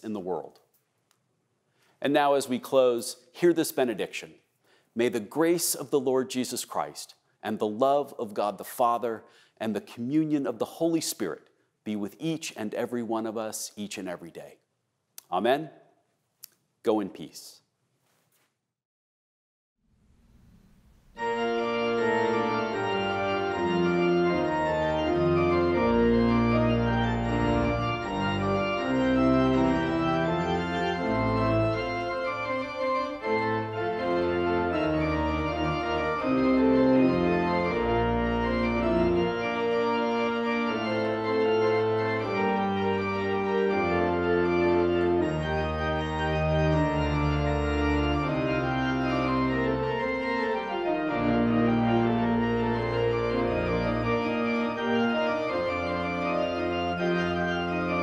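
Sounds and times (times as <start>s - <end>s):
organ playing held chords: 21.2s - 58.0s.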